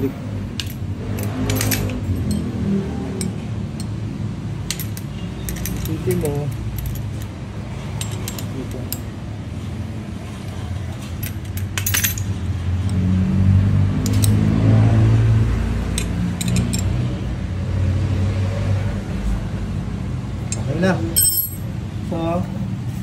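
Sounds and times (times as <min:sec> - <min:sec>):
vehicle engine hum: 0:00.0 - 0:23.0
small metal parts clinking: 0:00.5 - 0:02.5, 0:04.6 - 0:09.2, 0:10.9 - 0:13.0, 0:14.0 - 0:14.4, 0:15.9 - 0:17.0, 0:20.5 - 0:21.7.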